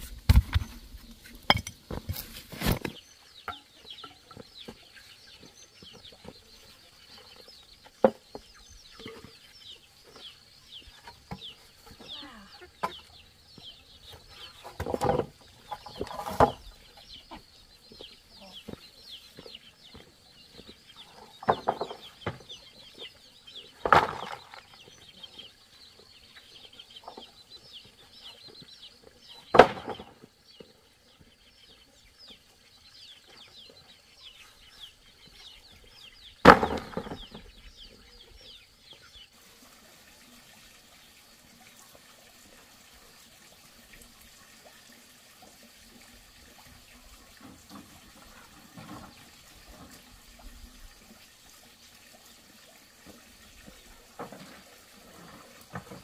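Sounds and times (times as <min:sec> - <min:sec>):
wooden boards knocking on earth: 0:00.0 - 0:03.6, 0:14.6 - 0:16.7, 0:21.4 - 0:22.5, 0:23.8 - 0:24.8, 0:29.5 - 0:30.3, 0:36.4 - 0:37.6.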